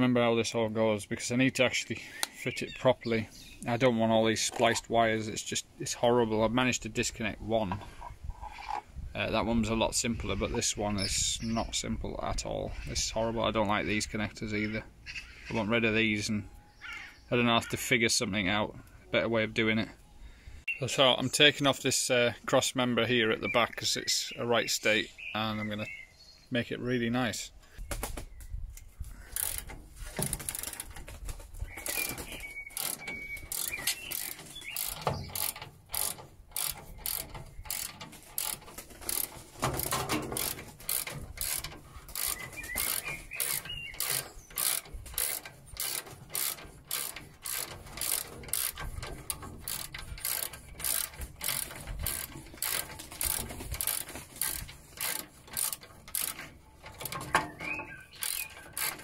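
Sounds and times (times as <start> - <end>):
ratchet spanner clicking: 29.3 - 31.0, 31.8 - 57.4, 58.2 - 59.0.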